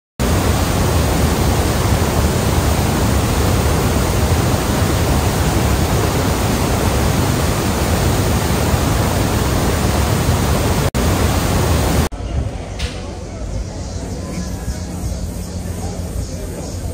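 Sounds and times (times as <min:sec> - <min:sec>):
waterfall rushing: 0:00.2 - 0:12.1.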